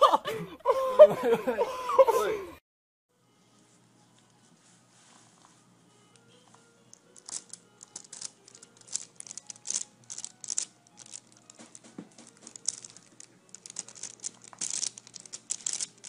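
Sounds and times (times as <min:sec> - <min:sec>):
gauze and gloves crinkling: 0:04.3 - 0:16.0.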